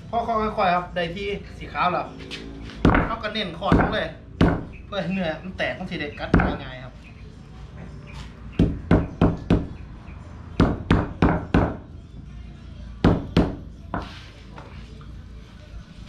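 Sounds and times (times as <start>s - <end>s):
hammer beating hide on wood: 2.8s - 4.8s, 8.5s - 9.7s, 10.6s - 11.8s, 13.0s - 14.1s.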